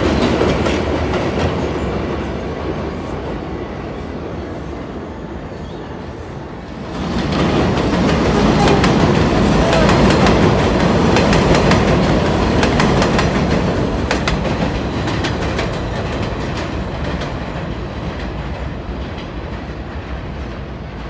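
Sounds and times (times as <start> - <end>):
subway train passing: 0.0 - 21.0
wheels clicking over rail joints: 7.0 - 19.7.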